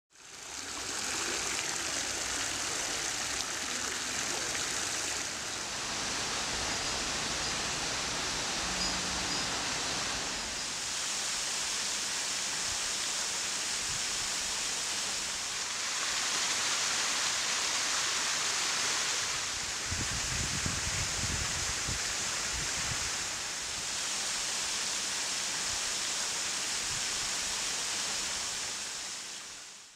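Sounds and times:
flowing water: 0.1s - 29.9s.

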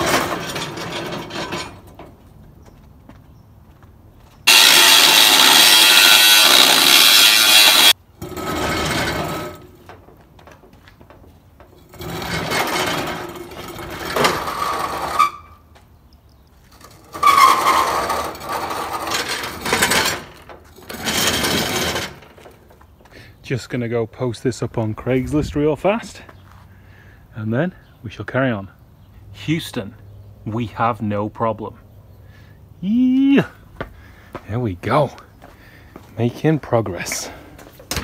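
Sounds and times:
metal scraping across concrete: 0.0s - 2.2s, 4.4s - 15.6s, 16.6s - 23.0s
metallic squeal: 4.5s - 9.6s, 12.0s - 15.6s, 17.0s - 20.2s.

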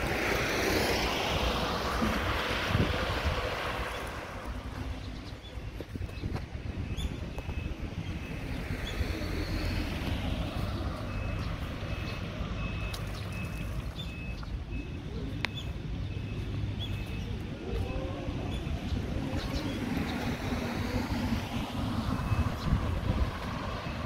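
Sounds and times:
traffic rumble: 0.0s - 24.0s
electronic warning beeps: 5.5s - 17.8s, 20.8s - 24.0s.

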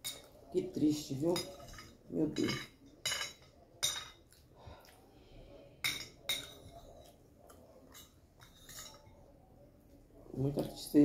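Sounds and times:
spoon clinking on glass plate: 1.3s - 4.2s.

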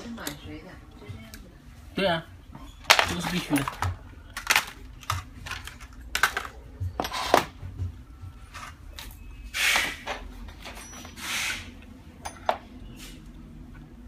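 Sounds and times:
metal parts clinking: 2.8s - 7.5s, 12.2s - 12.7s
short hiss bursts: 11.2s - 11.7s.

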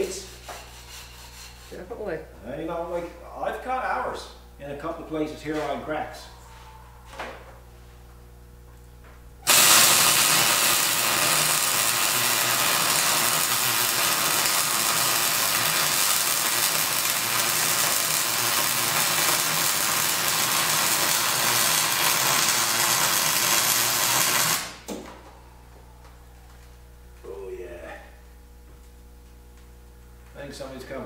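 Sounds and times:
welding arc sizzling: 0.0s - 2.0s, 8.2s - 24.9s.

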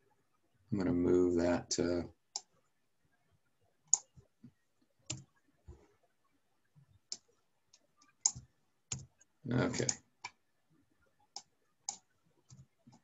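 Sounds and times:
computer mouse clicks: 2.3s - 2.5s, 3.9s - 4.2s, 5.0s - 5.3s, 7.1s - 10.4s, 11.3s - 13.0s.

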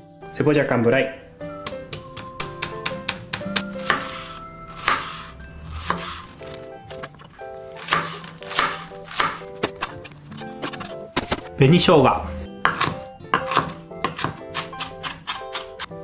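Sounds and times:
knife chopping on wooden board: 1.6s - 6.2s, 7.1s - 11.5s, 12.6s - 15.9s.

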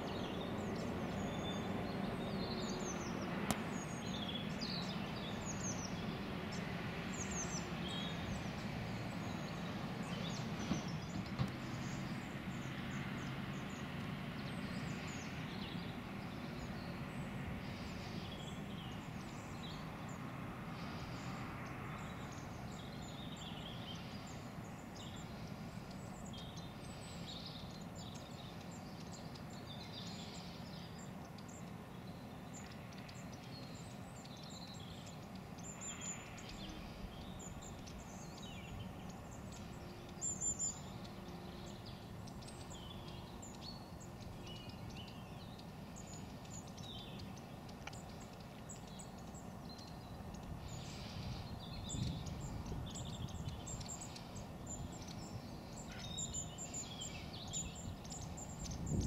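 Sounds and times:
diesel train rumble: 0.0s - 26.6s
small birds chirping: 0.0s - 59.0s.

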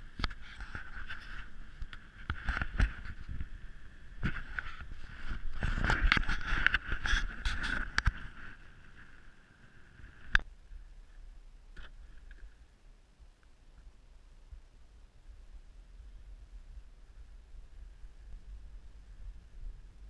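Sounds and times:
camera handling rubbing and knocks: 0.2s - 3.5s, 4.2s - 8.6s.

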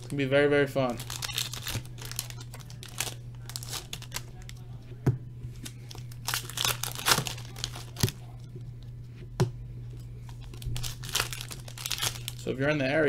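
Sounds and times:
foil wrapper crinkling and tearing: 0.0s - 4.6s, 5.6s - 8.4s, 10.3s - 12.5s
steady low hum: 0.0s - 13.0s.

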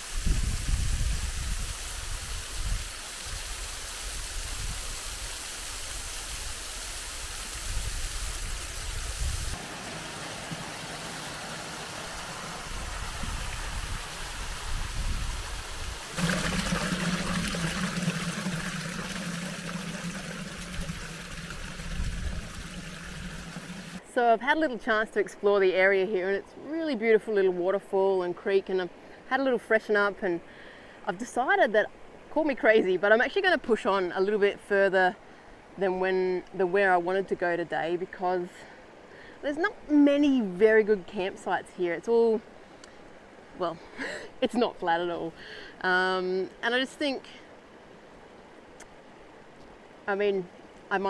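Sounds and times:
waterfall rushing: 8.3s - 24.0s.

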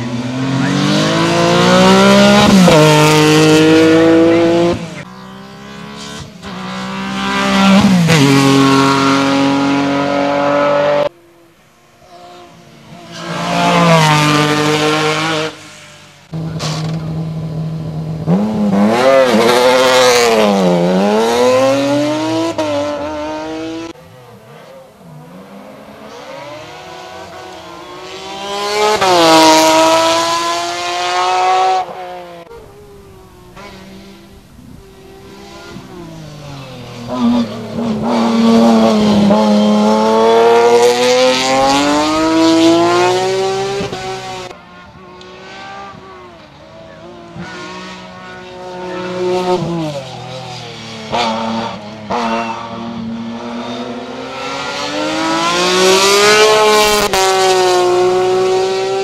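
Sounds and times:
racing car engines at full throttle: 0.0s - 59.0s.

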